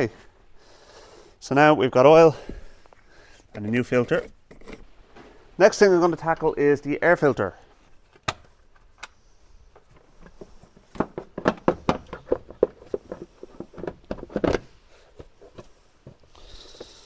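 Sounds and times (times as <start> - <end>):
plastic knocks: 10.9 - 14.6.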